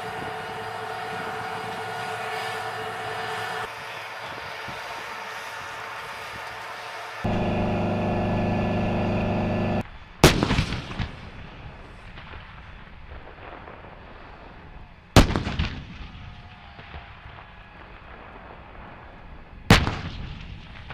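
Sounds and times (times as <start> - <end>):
loud steady engine drone: 0.0 - 9.8.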